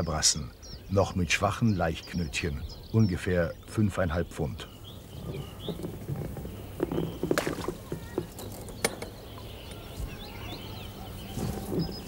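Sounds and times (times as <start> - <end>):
faint bird chirps: 0.0 - 12.0
fishing gear knocking and rustling: 5.0 - 9.3.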